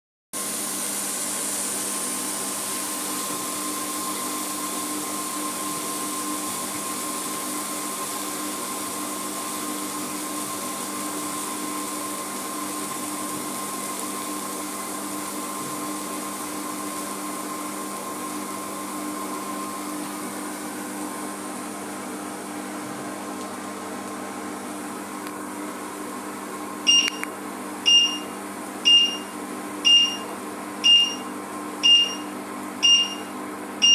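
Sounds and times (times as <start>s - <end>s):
hob fan hum and hiss: 0.4s - 33.9s
hob beeping: 26.9s - 33.9s.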